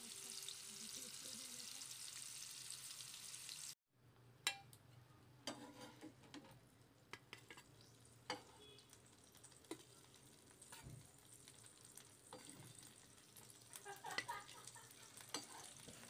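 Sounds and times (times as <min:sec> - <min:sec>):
oil sizzling: 0:00.0 - 0:03.8, 0:05.5 - 0:16.0
metal spatula clinking on pan: 0:04.5 - 0:04.8, 0:08.3 - 0:08.6, 0:15.2 - 0:15.8.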